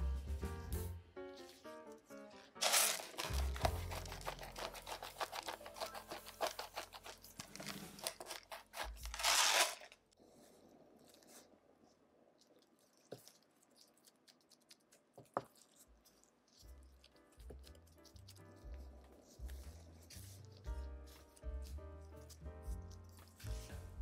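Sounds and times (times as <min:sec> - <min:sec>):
soft handling sounds: 0:02.4 - 0:21.4
pepper mill grinding: 0:02.5 - 0:10.0.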